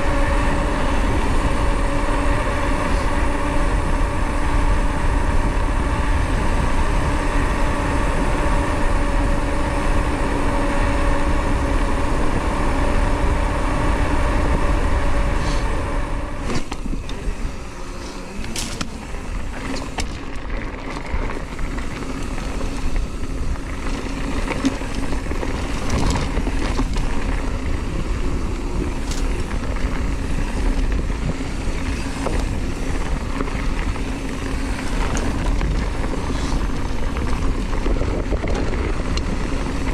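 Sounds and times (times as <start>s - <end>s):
bike tyre hum on asphalt: 0.0s - 39.9s
tyres rolling over dirt trail: 0.0s - 39.9s
bike knocks and rattles: 18.0s - 39.9s.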